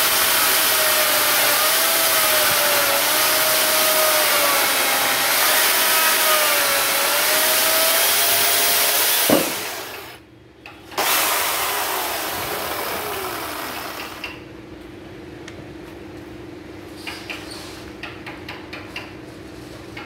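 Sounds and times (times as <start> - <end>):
electric chainsaw cutting wood: 0.0 - 10.2, 11.0 - 14.4.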